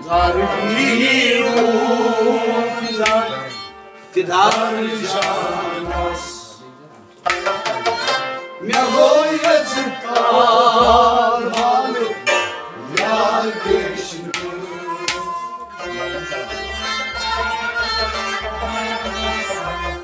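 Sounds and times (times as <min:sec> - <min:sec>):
man singing: 0:00.0 - 0:06.6, 0:08.6 - 0:17.0
harmonium chords: 0:00.0 - 0:20.0
plucked string notes: 0:00.0 - 0:20.0.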